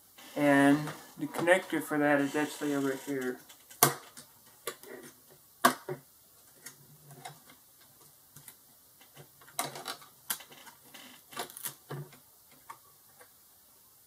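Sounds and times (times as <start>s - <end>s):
plastic clicks and rattles: 8.4s - 10.8s.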